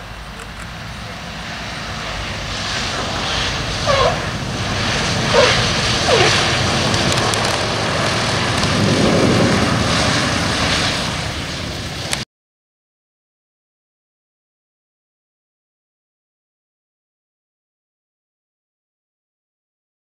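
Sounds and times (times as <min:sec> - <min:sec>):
radial aircraft engines running: 0:00.0 - 0:12.2
wheels squeaking: 0:03.8 - 0:04.3, 0:05.3 - 0:07.7.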